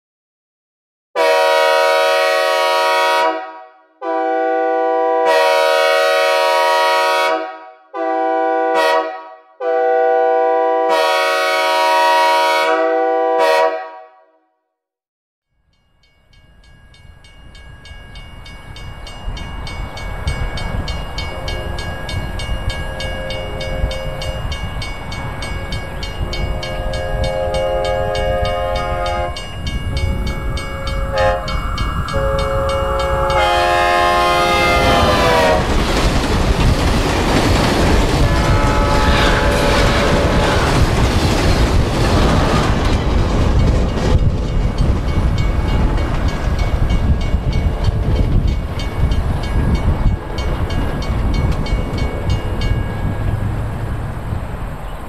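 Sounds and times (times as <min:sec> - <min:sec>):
synthesized train horn blasts: 0:01.2 - 0:14.4, 0:22.9 - 0:24.4, 0:25.4 - 0:35.8, 0:38.2 - 0:41.0
train rumble on rails: 0:16.2 - 0:55.0.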